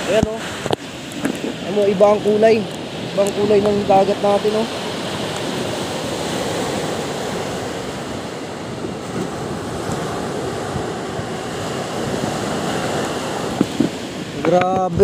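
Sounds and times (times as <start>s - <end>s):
surf waves washing on beach: 0.0s - 15.0s.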